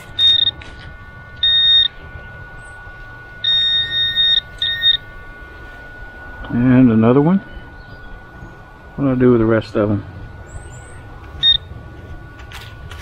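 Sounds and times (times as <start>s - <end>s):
metal detector pinpointer beeps: 0.0s - 0.7s, 1.4s - 2.0s, 3.4s - 5.2s, 10.6s - 11.7s
faint steady tone: 0.0s - 13.0s.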